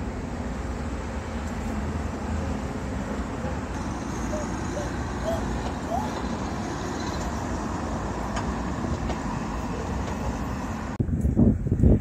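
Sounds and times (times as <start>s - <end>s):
road traffic: 0.0s - 12.0s
wind buffeting microphone: 3.8s - 12.0s.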